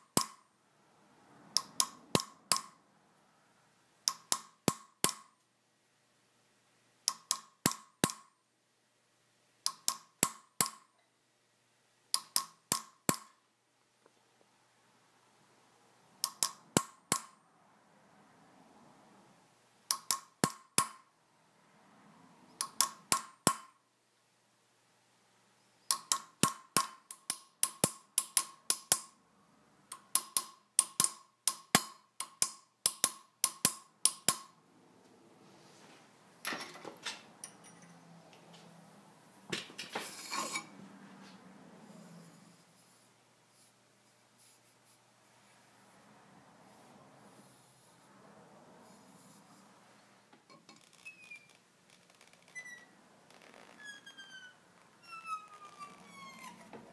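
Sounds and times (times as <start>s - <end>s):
hammer tapping metal: 0.0s - 0.4s, 1.6s - 2.8s, 4.1s - 5.4s, 9.7s - 10.9s, 12.2s - 13.4s, 16.2s - 17.4s, 19.9s - 21.1s, 25.9s - 29.2s, 29.9s - 34.6s.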